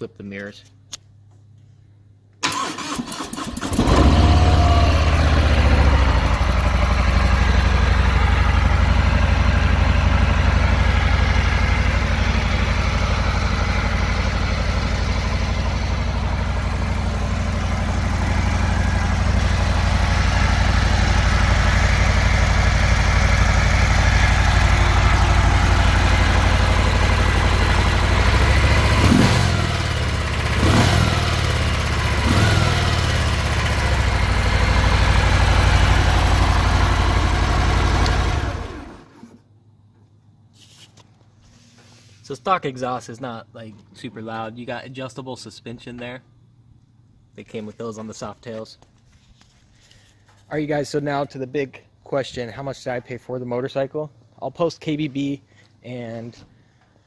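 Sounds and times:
motorcycle starter cranking: 0:02.4 - 0:06.6
motorcycle engine idling: 0:03.8 - 0:39.1.

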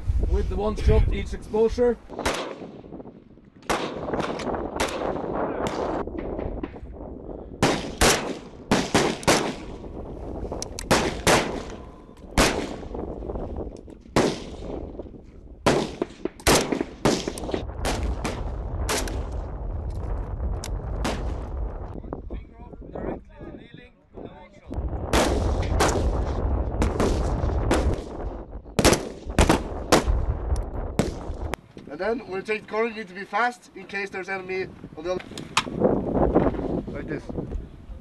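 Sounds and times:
rifle shots echoing: 0:02.2 - 0:02.8, 0:03.6 - 0:06.0, 0:07.6 - 0:09.8, 0:10.8 - 0:13.0, 0:14.1 - 0:14.8, 0:15.6 - 0:19.3, 0:25.1 - 0:28.2, 0:28.8 - 0:30.3.

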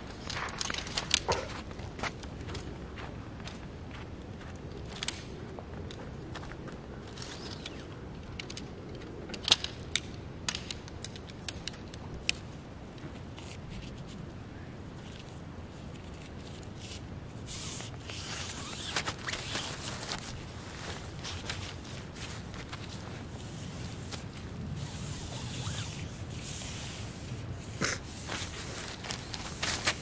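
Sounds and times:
tent fabric rustling and crinkling: 0:16.0 - 0:30.0.

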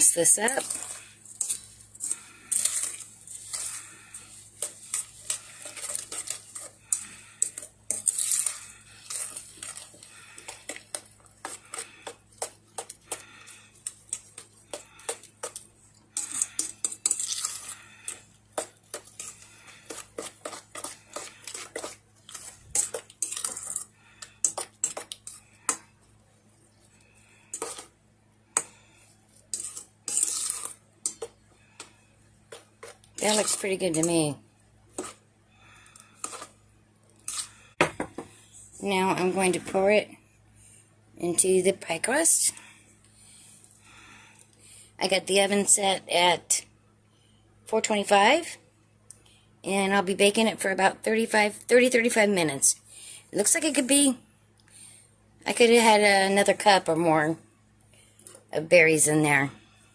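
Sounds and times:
spoon scraping metal bowl: 0:00.0 - 0:25.9, 0:27.2 - 0:28.0, 0:28.6 - 0:36.6.

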